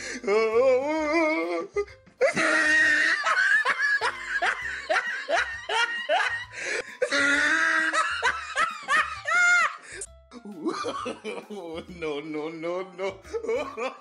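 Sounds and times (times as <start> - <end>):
person laughing: 1.4 - 12.2, 12.9 - 14.0.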